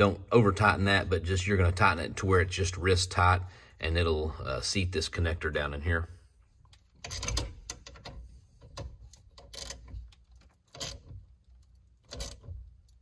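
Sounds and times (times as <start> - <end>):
hand tool clicking on a bolt: 6.7 - 13.0.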